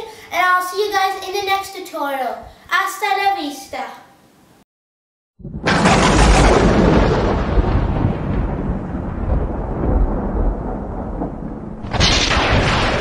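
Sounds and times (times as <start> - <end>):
sudden loud noise with deep rumble: 5.4 - 13.0.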